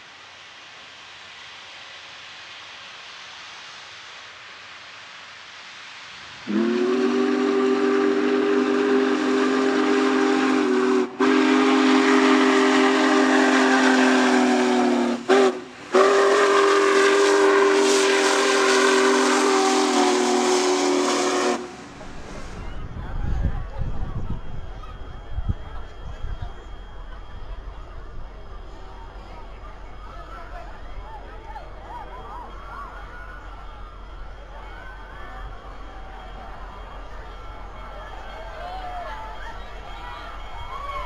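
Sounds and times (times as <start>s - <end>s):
steady steam hiss: 0.0s - 41.0s
steam whistle blasts: 6.4s - 22.6s.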